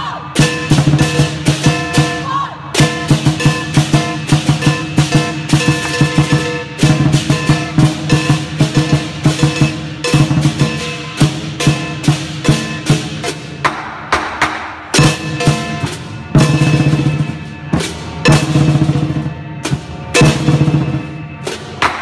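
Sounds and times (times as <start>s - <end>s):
cymbals crashing: 0.2s - 22.0s
drum beaten fast: 0.4s - 22.0s
gong ringing: 2.8s - 13.6s.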